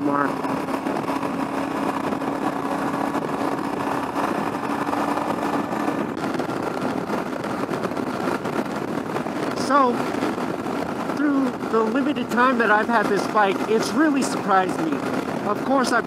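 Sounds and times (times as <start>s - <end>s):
motorcycle engine hum: 0.0s - 16.0s
wind and road noise: 0.0s - 16.0s.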